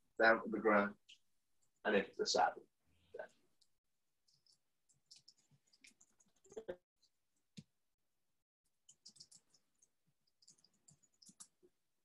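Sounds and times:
faint clicks and rustles: 3.5s - 7.7s.

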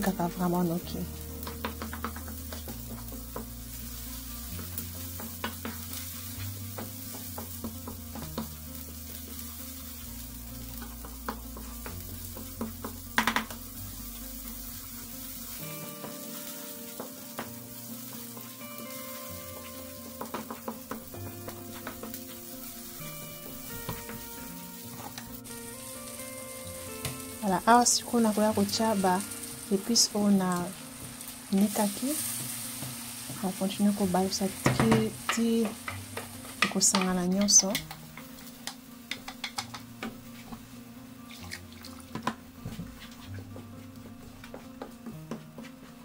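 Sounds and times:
paste sizzling in a pan: 0.3s - 42.3s
spoon knocking on pan: 11.0s - 13.6s, 20.1s - 21.1s, 34.6s - 40.2s.

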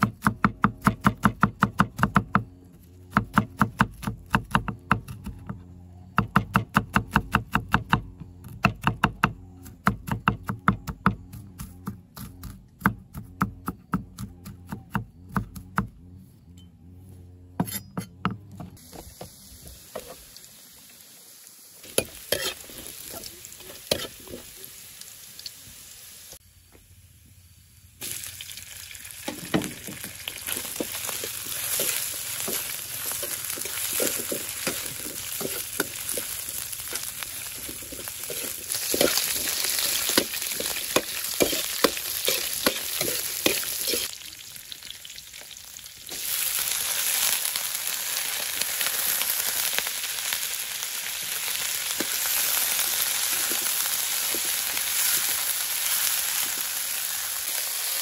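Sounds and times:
food sizzling in a pan: 18.8s - 26.4s, 28.0s - 58.0s
knife chopping on cutting board: 40.1s - 44.0s.

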